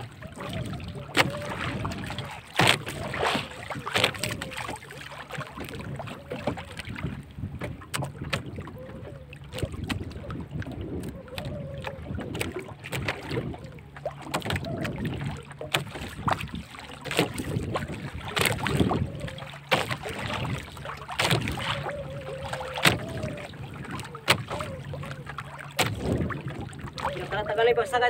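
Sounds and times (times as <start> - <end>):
water: 0.0 - 28.0
wind: 0.0 - 28.0
knocks on wooden boat: 2.6 - 3.0, 25.7 - 26.4.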